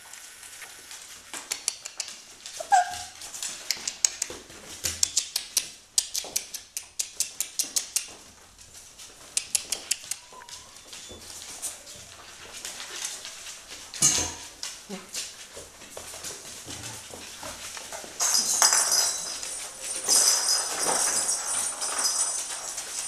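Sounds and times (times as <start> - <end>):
sharp clicks and taps: 1.3 - 2.2, 3.5 - 8.2, 9.2 - 10.5
puppy whimpering: 2.6 - 3.2, 9.7 - 12.2.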